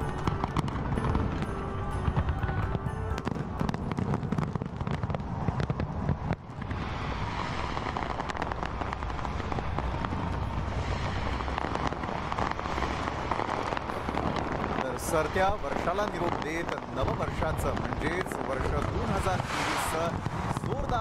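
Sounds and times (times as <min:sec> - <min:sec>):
fireworks bangs and crackles: 0:00.0 - 0:21.0
low rumble: 0:00.0 - 0:21.0.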